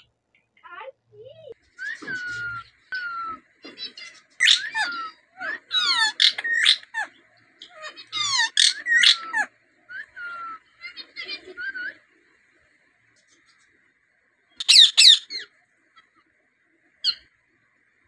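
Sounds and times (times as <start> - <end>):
parakeet whistles and calls: 1.8 - 12.2, 14.5 - 16.2, 17.0 - 17.4.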